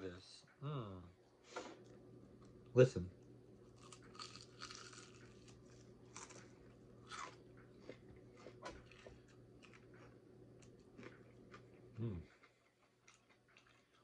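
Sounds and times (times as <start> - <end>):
crunching fried chicken: 3.6 - 14.0.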